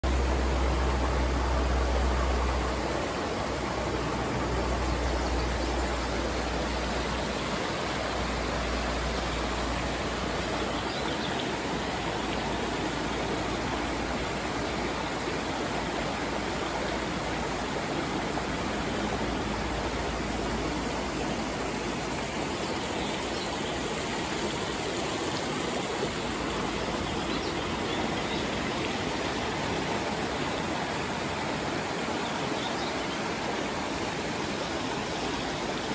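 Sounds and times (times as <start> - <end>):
river water rushing into a pool: 0.0 - 35.9.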